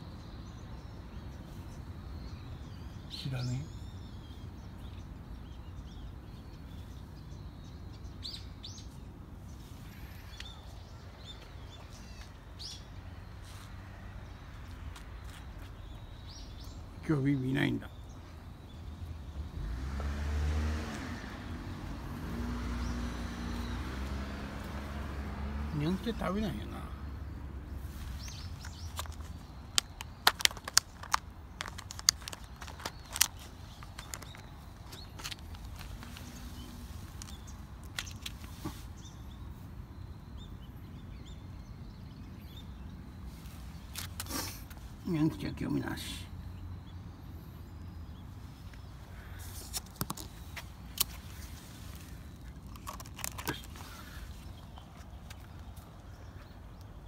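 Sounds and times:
footsteps on paving: 14.5 - 16.0.

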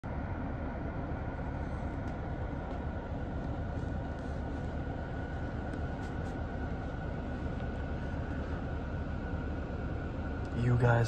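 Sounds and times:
low rumble: 0.0 - 10.6
faint high whine: 0.0 - 11.0.

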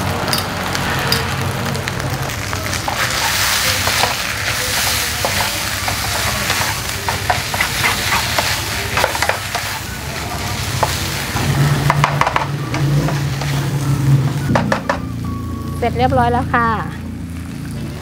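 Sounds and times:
food sizzling in a frying pan: 0.0 - 16.2
spatula scraping and tapping pan: 2.9 - 9.8.

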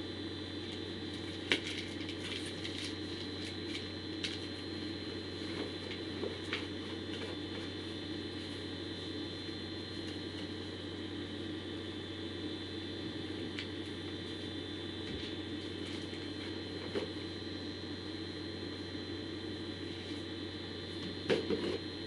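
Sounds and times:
electrical hum and hiss: 0.0 - 22.0.

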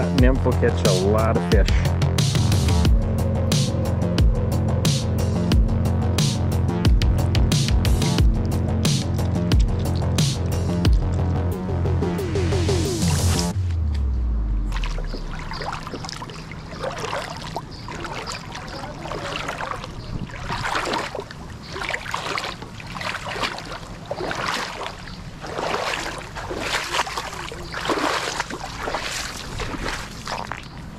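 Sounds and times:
water sloshing and splashing: 6.9 - 11.5, 14.6 - 30.9.

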